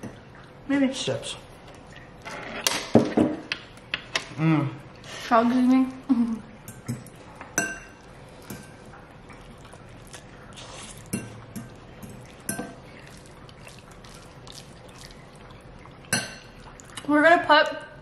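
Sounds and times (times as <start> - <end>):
wet chewing and slurping: 7.1 - 17.1.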